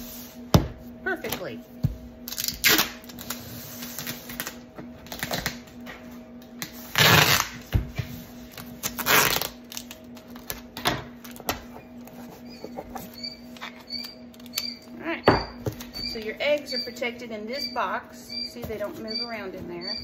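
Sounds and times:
steady low hum: 0.0 - 20.0
packing tape pulled off tape gun: 2.3 - 5.6, 6.9 - 7.6, 8.6 - 10.6.

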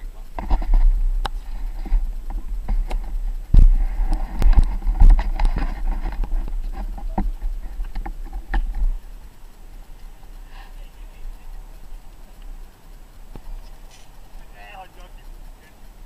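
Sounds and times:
low rumble: 0.0 - 16.0
knocks and scrapes on camera housing: 0.4 - 9.0.

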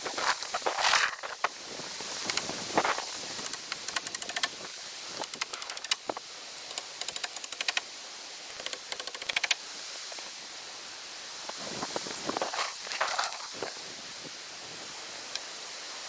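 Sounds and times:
power tool rapid clicking: 3.3 - 4.6, 5.2 - 6.1, 6.7 - 7.8, 8.5 - 9.6.

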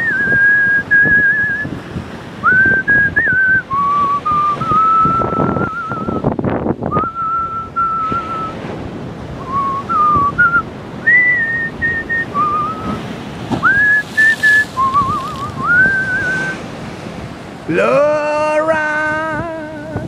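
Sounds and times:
person whistling a tune: 0.0 - 1.7, 2.4 - 6.3, 6.9 - 8.6, 9.4 - 13.0, 13.6 - 16.6
sea waves: 0.0 - 20.0
wind: 0.0 - 20.0.

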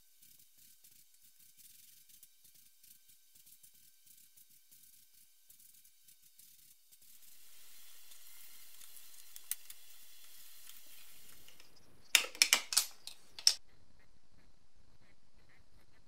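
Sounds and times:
spray gun hissing: 6.9 - 11.6.

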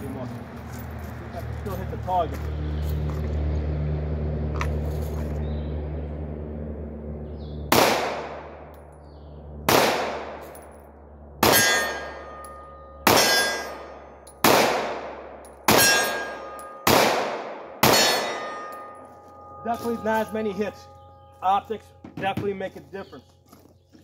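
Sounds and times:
pistol shots echoing: 7.7 - 8.7, 9.6 - 10.7, 11.4 - 19.0
short metallic ring: 11.5 - 14.4, 15.4 - 16.9, 17.9 - 23.2.

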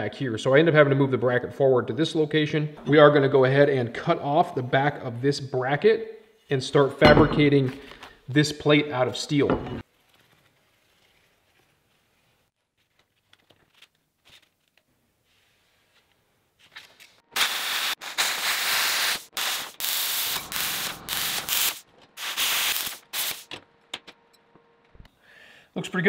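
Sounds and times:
plasma cutter hissing: 17.4 - 23.4.

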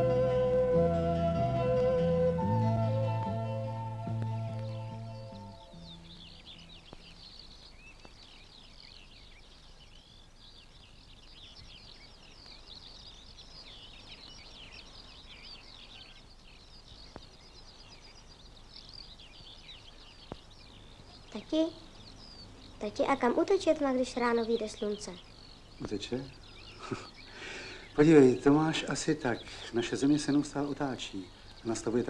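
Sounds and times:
low musical note: 0.0 - 6.7
small birds twittering: 0.0 - 32.0.

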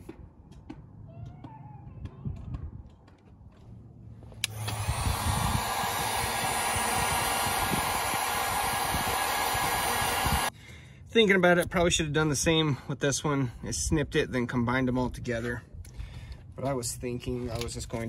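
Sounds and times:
heat gun switch click: 4.4 - 9.6
heat gun fan blowing: 4.4 - 10.5.

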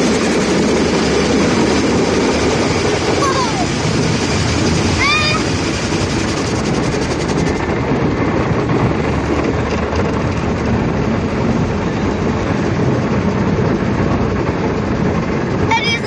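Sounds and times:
car wash water and machinery: 0.0 - 16.0.

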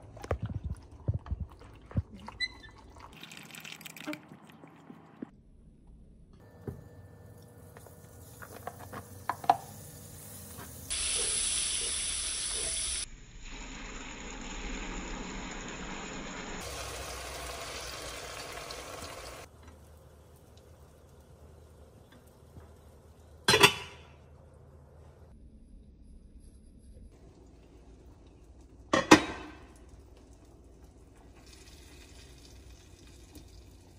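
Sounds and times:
water running from tap: 8.2 - 19.5, 31.1 - 33.9.

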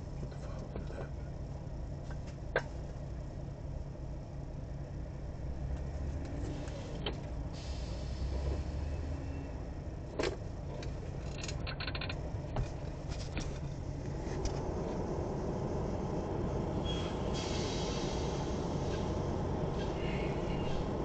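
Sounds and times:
truck engine idling: 10.6 - 21.0.

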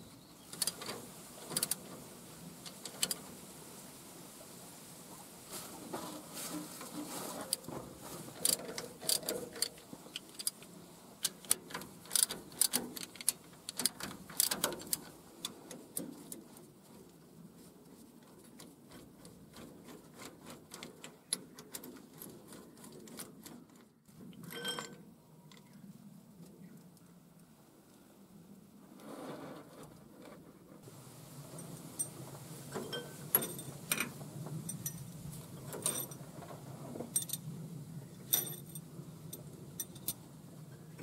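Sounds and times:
metal clink: 24.5 - 25.0, 32.8 - 35.1, 35.8 - 36.2, 38.2 - 40.2.

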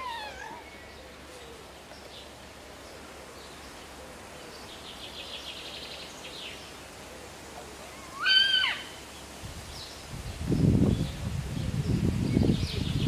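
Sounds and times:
wolf pup squealing: 8.1 - 8.9.

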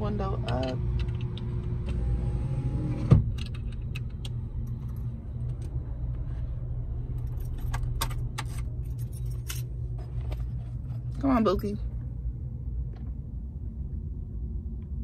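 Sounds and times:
car engine idling: 0.0 - 13.9
light metallic clicks and jingles: 7.2 - 9.8.

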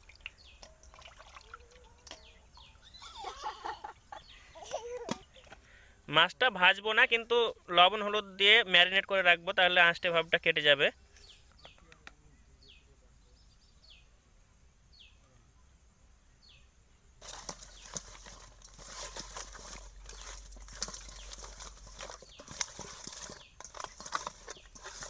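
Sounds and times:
rustling and clattering: 17.2 - 25.0.

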